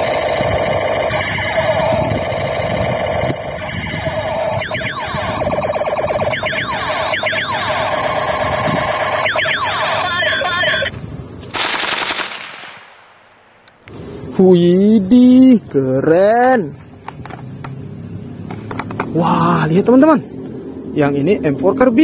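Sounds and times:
rifle rapid shots: 0:11.5 - 0:13.8.

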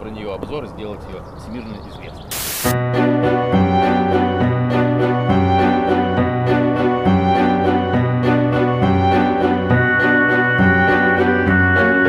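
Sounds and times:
music with sustained tones: 0:02.8 - 0:12.0.

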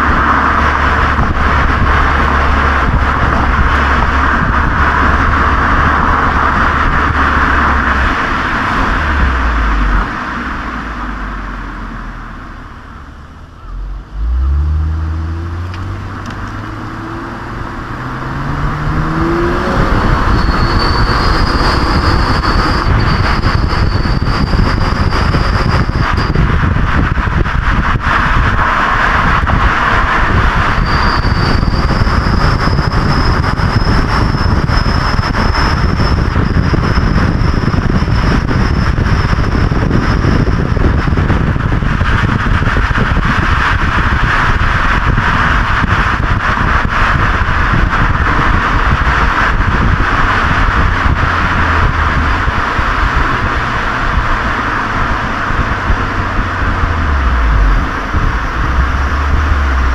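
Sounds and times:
car exhaust drone: 0:00.0 - 0:59.9
wind and road noise: 0:00.0 - 0:59.9
thin high whistle: 0:18.4 - 0:26.4, 0:30.7 - 0:39.4.

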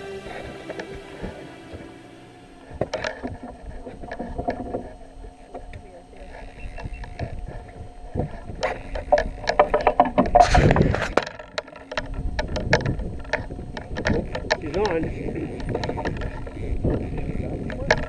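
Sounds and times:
indistinct voices: 0:00.0 - 0:06.3.

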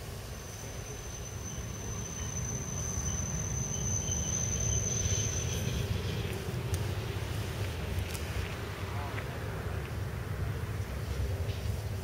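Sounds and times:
high-pitched tram whine: 0:00.0 - 0:07.4
tram rumble on rails: 0:00.0 - 0:12.0.

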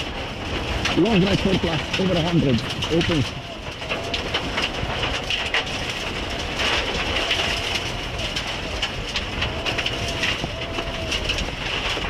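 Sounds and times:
stones rattling against car: 0:00.0 - 0:12.0
tyre and road noise: 0:00.0 - 0:12.0.

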